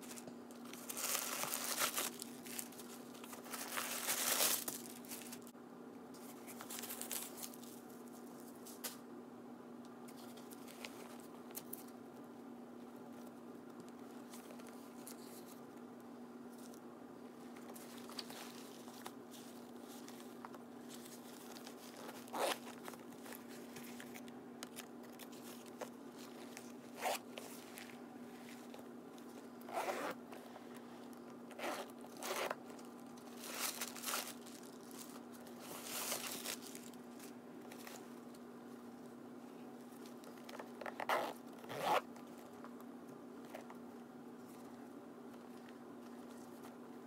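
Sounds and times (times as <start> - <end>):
handling rustles: 0.0 - 5.5, 6.1 - 9.0, 17.4 - 38.4
steady low hum: 0.0 - 47.0
metal zipper pulled: 22.3 - 22.6, 29.7 - 30.2, 41.0 - 42.1.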